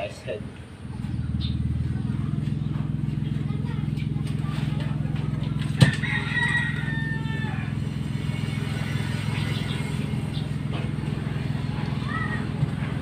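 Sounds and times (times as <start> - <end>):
steady low hum: 0.0 - 13.0
rooster crowing: 5.7 - 10.0.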